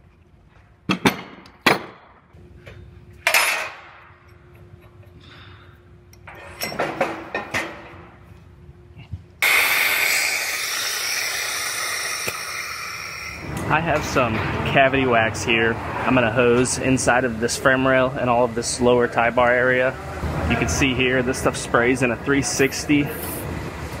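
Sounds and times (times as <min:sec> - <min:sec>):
steel clamp parts clanking: 0:06.2 - 0:07.7
compressed air hissing: 0:09.4 - 0:13.5.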